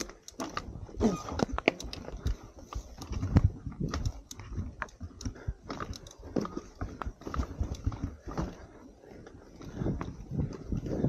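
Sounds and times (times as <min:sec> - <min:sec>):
mountain bike rattling over rocks: 0:00.0 - 0:11.0.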